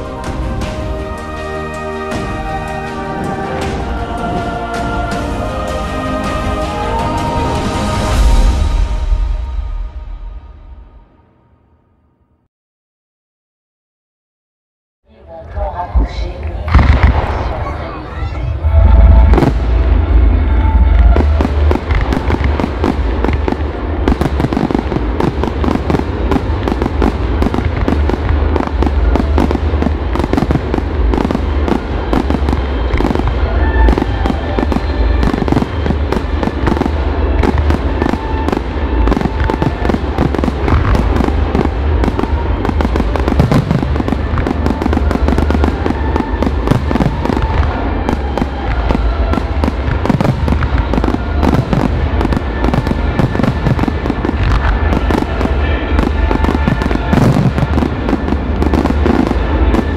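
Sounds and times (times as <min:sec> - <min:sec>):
fireworks bursting: 0:00.0 - 0:10.7, 0:15.6 - 0:59.9
deep continuous rumble: 0:15.1 - 0:59.9.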